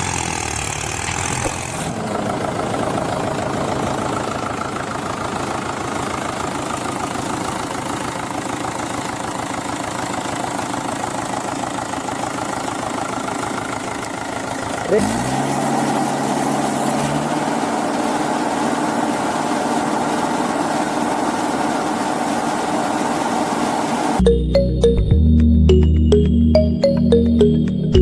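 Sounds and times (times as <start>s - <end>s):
tractor engine idling: 0.0s - 15.3s, 17.5s - 24.6s.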